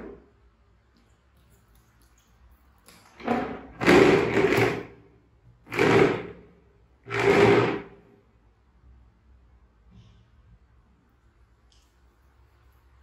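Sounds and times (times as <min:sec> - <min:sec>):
plastic chair scraping tile floor: 0:03.1 - 0:05.0, 0:05.6 - 0:08.0.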